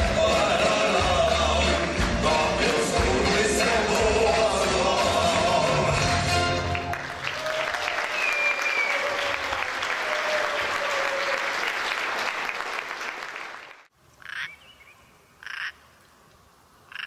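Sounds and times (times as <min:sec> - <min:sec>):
music: 0:00.0 - 0:07.2
audience applauding: 0:00.0 - 0:13.9.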